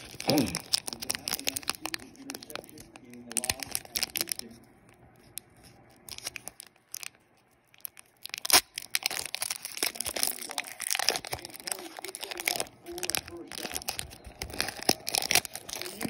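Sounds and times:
sharp crack of foil: 0.0 - 4.5, 7.8 - 16.0
foil wrapper crinkling and tearing: 0.0 - 16.0.

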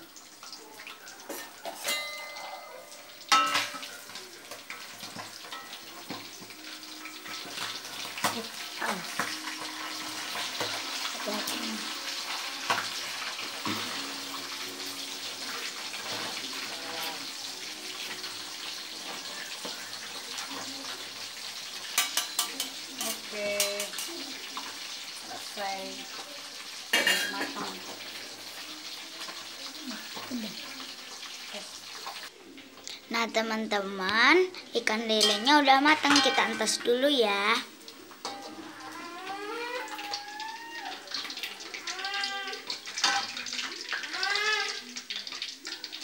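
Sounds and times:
fish deep-frying sizzle: 0.0 - 46.0
metal spatula scraping wok: 1.3 - 2.6.

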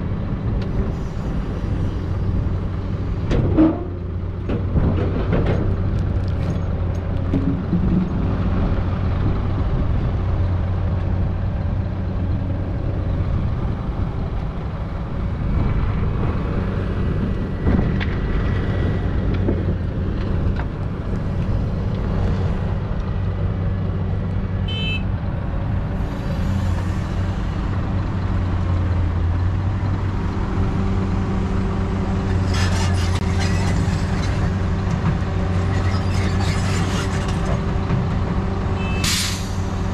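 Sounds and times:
diesel engines running: 0.0 - 39.9
clattering: 3.3 - 8.4.

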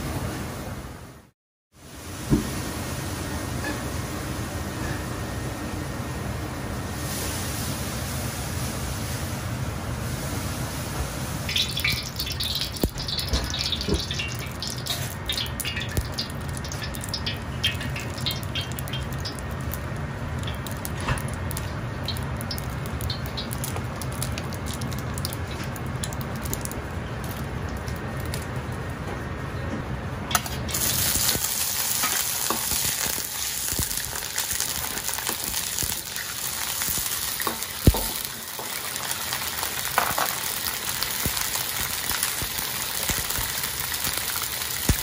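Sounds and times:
oil crackling and spitting in wok: 10.2 - 28.6, 30.3 - 45.0
gas burner rushing: 30.2 - 45.0.

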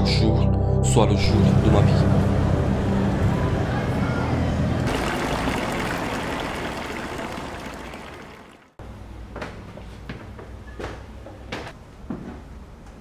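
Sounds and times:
fountain water splashing: 4.9 - 8.8.

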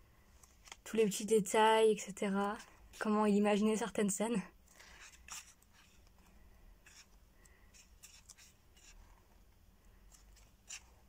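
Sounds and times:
paper pages turning: 0.4 - 1.0, 4.8 - 9.2, 10.0 - 11.0.

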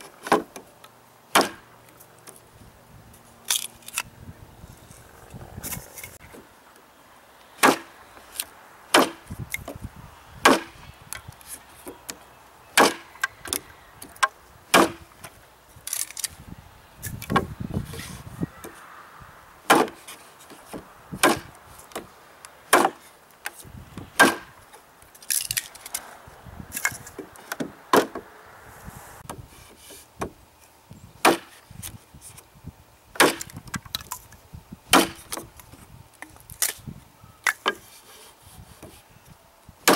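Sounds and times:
knife chopping wood: 0.0 - 0.6, 1.3 - 1.7, 7.6 - 7.9, 8.9 - 9.7, 10.4 - 10.8, 12.8 - 15.1, 19.7 - 22.1, 22.7 - 23.1, 24.0 - 24.6, 26.8 - 28.2, 31.2 - 31.6, 33.2 - 33.8, 34.9 - 35.5.

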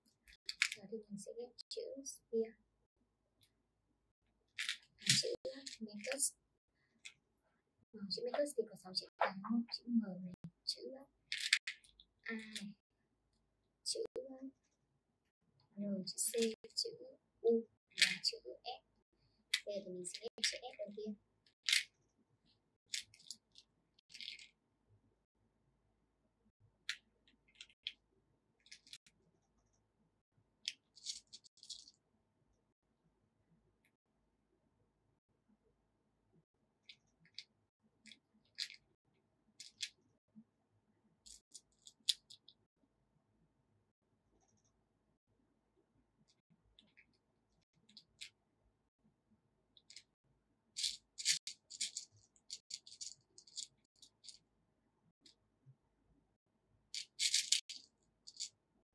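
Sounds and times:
plastic beads clicking and rattling: 0.2 - 0.8, 4.6 - 6.2, 11.3 - 12.7, 22.9 - 24.6, 26.9 - 28.0, 28.6 - 29.1, 30.7 - 32.0, 37.2 - 38.8, 39.6 - 40.0, 41.3 - 42.5, 50.8 - 54.4, 57.0 - 58.5.

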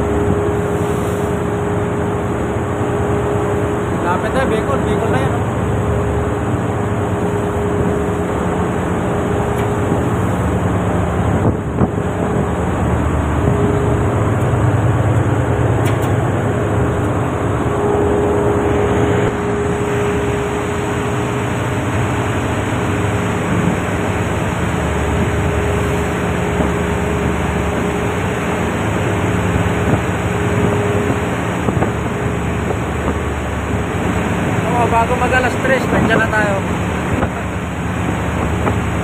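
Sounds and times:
ship engines droning: 0.0 - 39.0
wind and sea rushing: 0.0 - 39.0.

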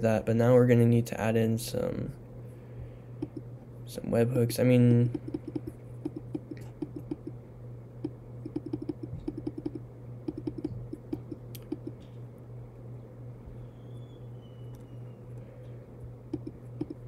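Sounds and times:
low steady hum: 0.0 - 17.0
keyboard keystroke clicks: 8.0 - 12.0, 16.3 - 17.0.

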